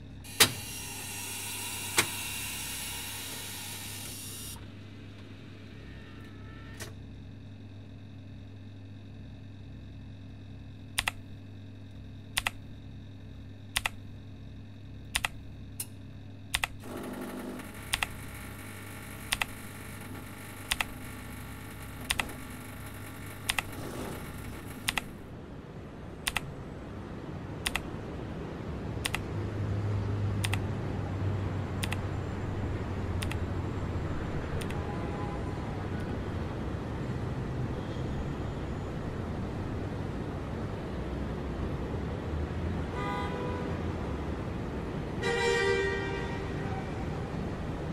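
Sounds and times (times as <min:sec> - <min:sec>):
low hum: 0:00.0 - 0:42.9
street traffic: 0:00.0 - 0:47.9
sharp clicks: 0:10.9 - 0:11.3, 0:12.3 - 0:12.6, 0:13.7 - 0:14.0, 0:15.1 - 0:25.2, 0:26.3 - 0:26.5, 0:27.6 - 0:27.9, 0:29.0 - 0:29.3, 0:30.4 - 0:30.6, 0:31.8 - 0:32.0, 0:33.2 - 0:33.5.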